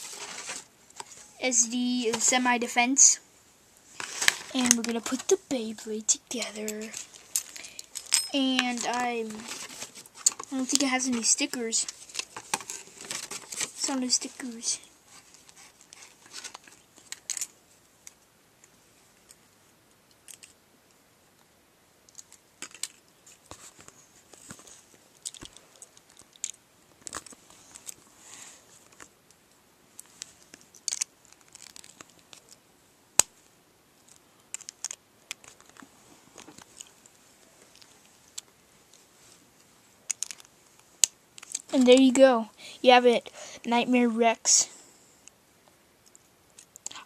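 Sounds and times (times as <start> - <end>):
handling rustle and crinkling: 0.0 - 3.0, 3.8 - 19.5, 22.1 - 44.4
small parts clicking together: 20.1 - 20.6, 25.2 - 28.0, 30.0 - 32.6, 34.1 - 35.8, 40.1 - 41.9.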